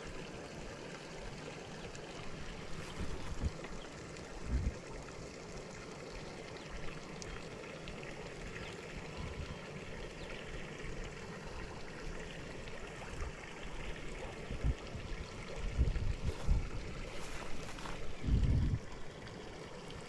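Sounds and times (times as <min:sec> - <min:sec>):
wind buffeting microphone: 0:02.8 - 0:03.6, 0:04.4 - 0:04.8, 0:14.2 - 0:19.0.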